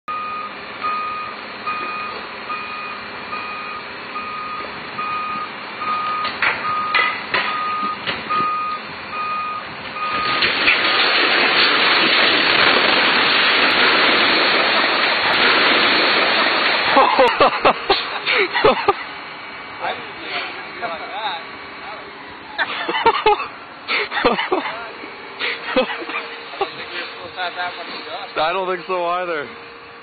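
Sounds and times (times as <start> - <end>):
reversing alarm beeping: 0.1 - 10.5
building collapsing crash: 10.0 - 18.9.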